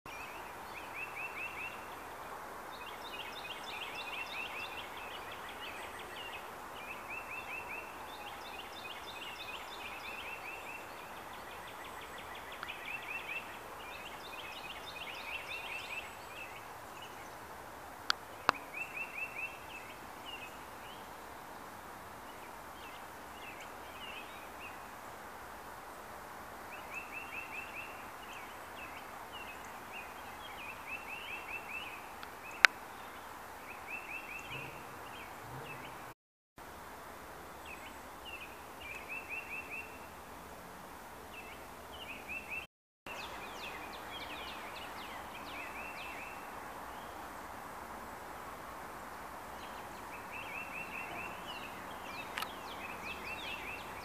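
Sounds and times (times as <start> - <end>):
bird singing varied song: 0.1 - 21.2, 22.2 - 25.0, 26.6 - 36.2, 37.6 - 40.2, 41.2 - 47.3, 49.5 - 54.0
background hiss: 0.1 - 54.0
bird trilling: 34.4 - 36.1.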